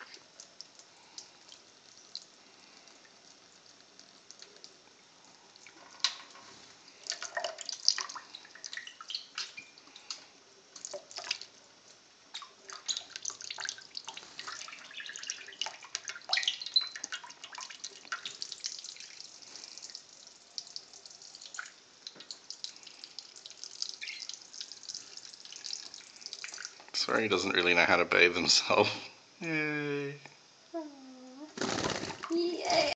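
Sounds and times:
tap water stream falling: 0:00.0 - 0:11.6, 0:12.3 - 0:26.9
splashes and drips into sink: 0:07.0 - 0:11.6, 0:12.3 - 0:26.9.

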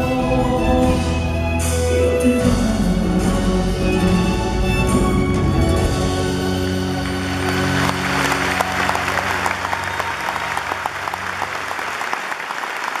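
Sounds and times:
band and orchestra held chord: 0:00.0 - 0:11.8
audience applauding: 0:06.1 - 0:13.0.

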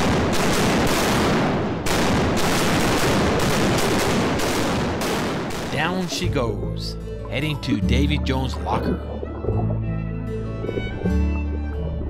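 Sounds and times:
cannons firing: 0:00.0 - 0:06.2.

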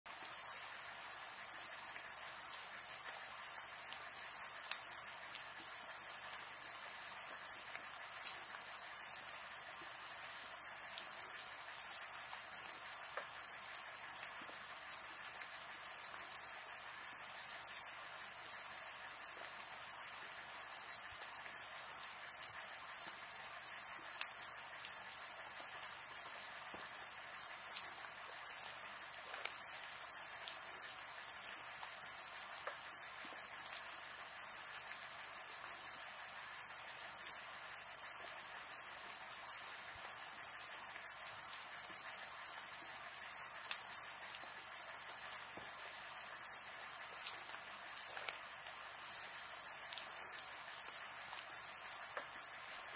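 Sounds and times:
insect chirping: 0:00.1 - 0:52.9.

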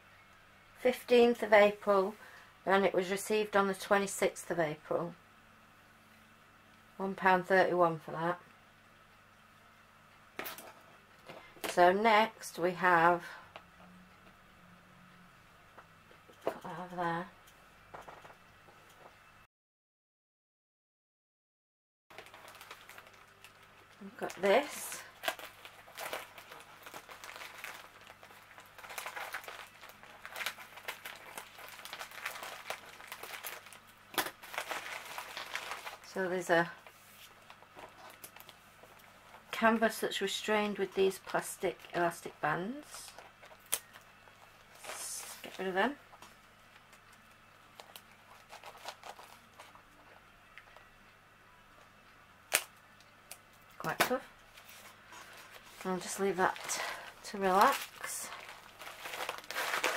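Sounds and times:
plastic mailer crinkling: 0:22.1 - 0:42.2, 0:42.8 - 0:50.9, 0:53.8 - 0:59.9
plastic rustling: 0:22.1 - 0:51.0, 0:53.5 - 0:59.9.

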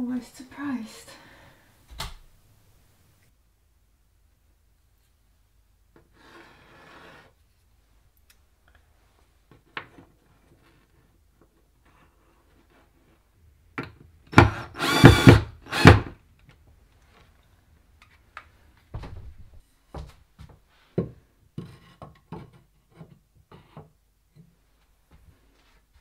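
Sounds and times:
cordless drill driving a screw: 0:14.4 - 0:16.1.

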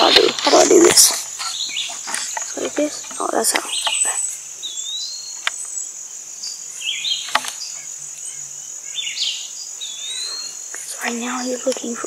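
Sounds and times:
high-pitched insect chorus: 0:00.0 - 0:12.0
sharp clicks: 0:07.2 - 0:07.6.

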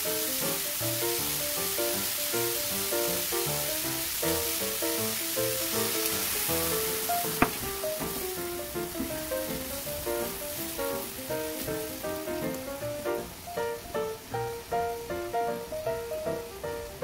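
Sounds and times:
liquid bubbling in pan: 0:00.0 - 0:13.5
food sizzling in pan: 0:00.0 - 0:17.0
light plucked music: 0:03.8 - 0:17.0.

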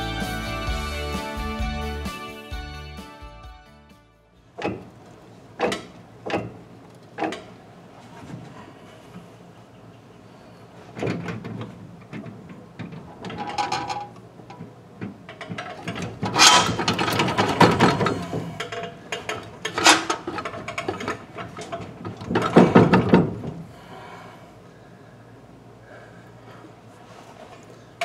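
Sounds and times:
metal clunking and scraping: 0:04.6 - 0:06.6, 0:10.9 - 0:23.7.

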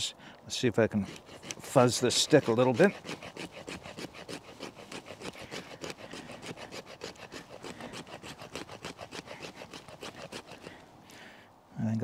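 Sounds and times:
knife blade scraping wood: 0:00.8 - 0:10.8.

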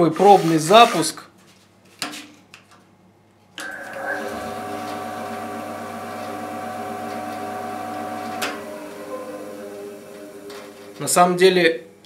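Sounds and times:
band saw motor running: 0:03.6 - 0:11.3.

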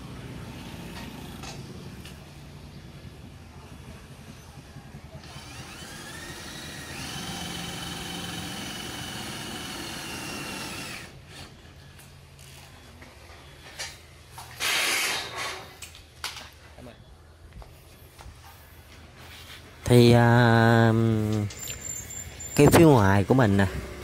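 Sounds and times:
cordless drill motor whining: 0:05.2 - 0:11.2.

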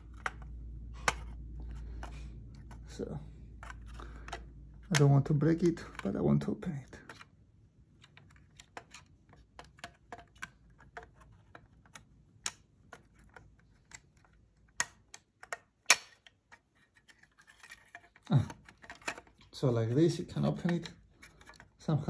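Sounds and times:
plastic case clicks and snaps: 0:00.0 - 0:06.2, 0:08.0 - 0:16.6.

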